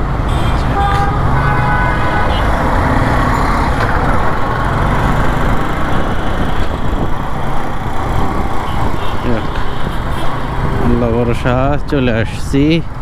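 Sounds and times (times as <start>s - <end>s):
wind and road noise: 0.0s - 13.0s.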